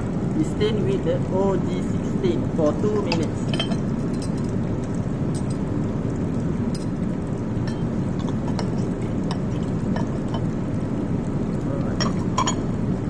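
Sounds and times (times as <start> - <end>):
low background rumble: 0.0 - 13.0
glass rack clinking: 3.0 - 4.5, 12.0 - 12.7.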